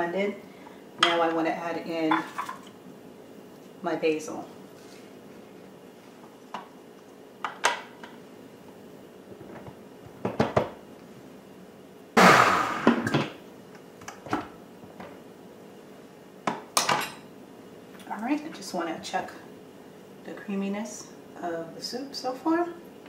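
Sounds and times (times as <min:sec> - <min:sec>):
blender burst: 0:12.2 - 0:13.1.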